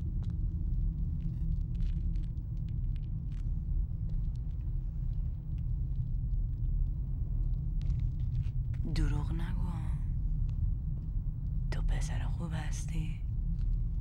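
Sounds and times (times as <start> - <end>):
low rumble of night ambience: 0.0 - 14.0.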